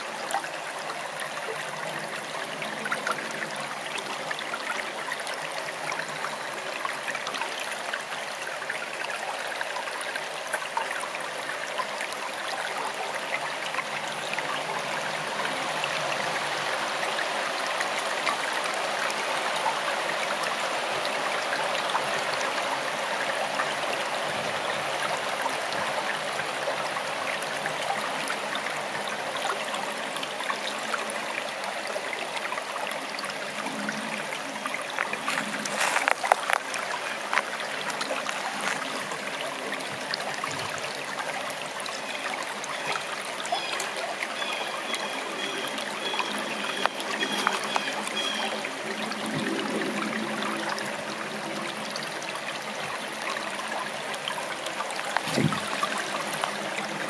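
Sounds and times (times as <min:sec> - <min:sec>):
forest stream flowing: 0:00.0 - 0:57.0
splashing burbles: 0:55.0 - 0:57.0.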